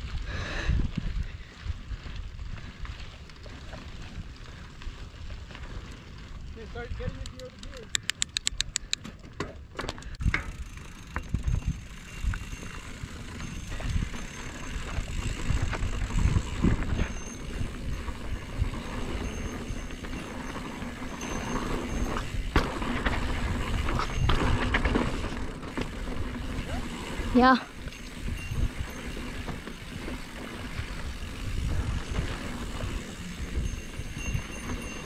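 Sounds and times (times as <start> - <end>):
wind on microphone: 0.0 - 3.0, 13.5 - 25.4, 26.0 - 35.0
bike chain and frame rattling: 0.0 - 35.0
bike tyre noise: 0.0 - 35.0.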